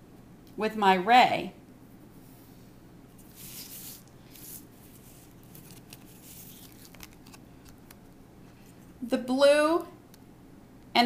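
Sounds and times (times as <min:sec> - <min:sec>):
plastic scraping on paper: 0:03.2 - 0:08.0.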